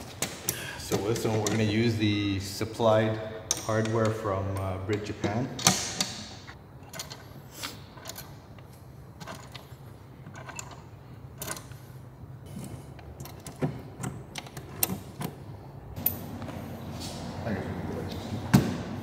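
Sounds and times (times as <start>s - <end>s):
hex key turning bolts: 6.8s - 7.4s, 8.0s - 8.6s, 9.2s - 11.8s, 13.0s - 15.4s.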